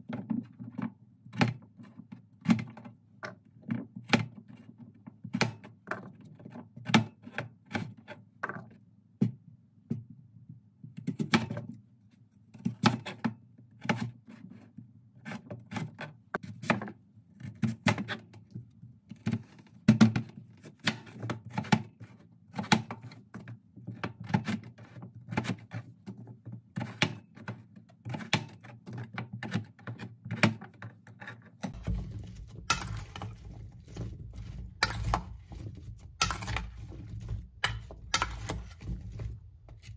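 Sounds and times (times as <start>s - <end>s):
knife chopping on plastic board: 19.1s - 23.2s, 26.8s - 30.8s, 31.6s - 39.9s
vegetable cubes tossed in metal bowl: 31.7s - 39.9s.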